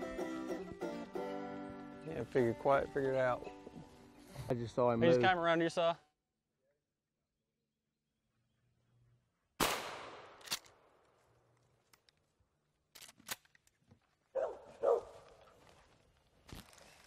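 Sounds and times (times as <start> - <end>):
dog barking: 14.3 - 15.2.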